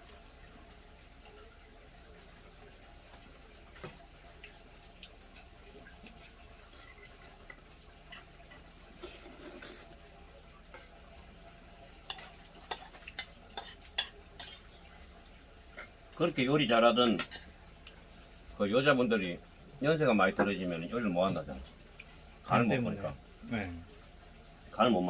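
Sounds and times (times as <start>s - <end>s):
utensils clinking on metal bowl: 16.9s - 17.8s.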